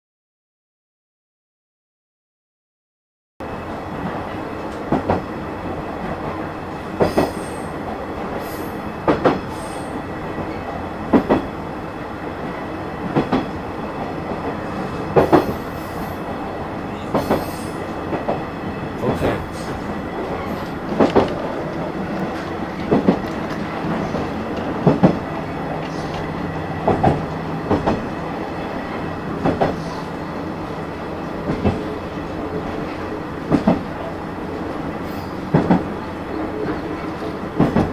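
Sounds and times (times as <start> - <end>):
small train running with hum: 3.4 - 37.9
wheels clicking over rail joints: 19.1 - 28.1.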